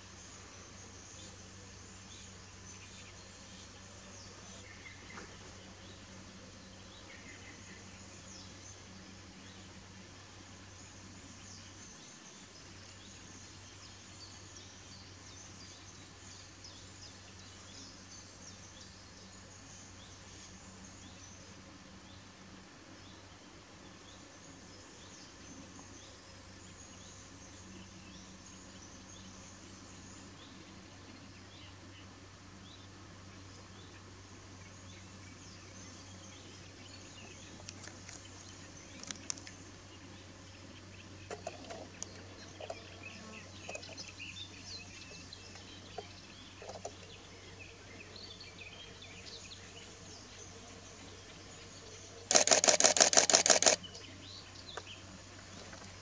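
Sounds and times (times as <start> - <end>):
low steady hum: 0.0 - 56.0
distant birds chirping: 23.8 - 56.0
short sharp chirps and clicks: 52.3 - 53.8.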